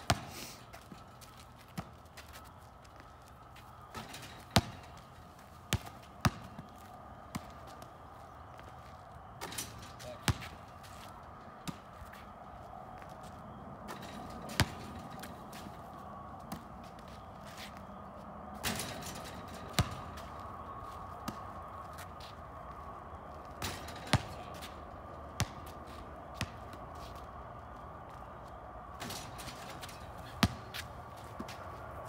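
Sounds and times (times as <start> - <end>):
basketball bouncing on asphalt: 0.0 - 8.7, 9.4 - 12.2, 13.9 - 15.7, 18.6 - 20.4, 23.6 - 27.3, 29.0 - 31.6.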